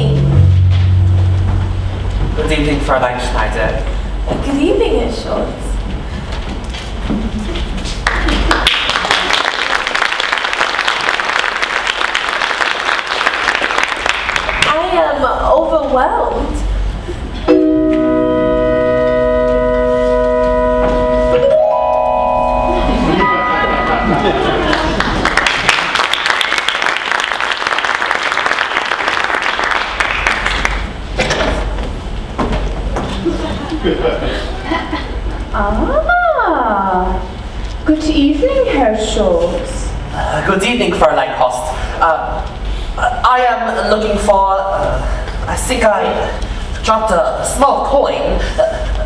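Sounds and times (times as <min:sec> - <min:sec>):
audience applauding: 0:07.9 - 0:14.8, 0:24.2 - 0:31.0.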